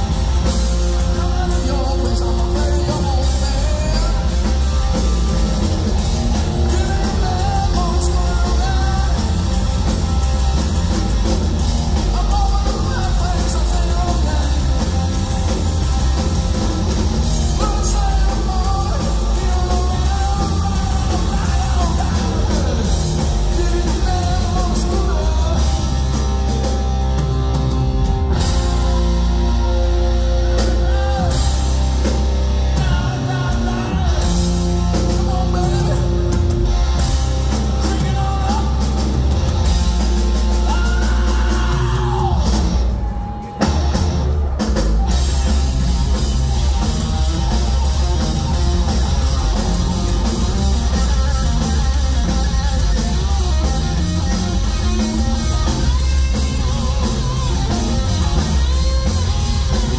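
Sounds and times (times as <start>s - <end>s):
bass guitar: 0.0s - 59.9s
distorted electric guitar: 0.0s - 59.9s
drum kit: 0.0s - 59.9s
man singing: 0.8s - 10.0s, 12.0s - 15.2s, 17.3s - 26.6s, 30.5s - 31.6s, 32.7s - 36.4s, 37.5s - 39.3s, 40.5s - 42.7s.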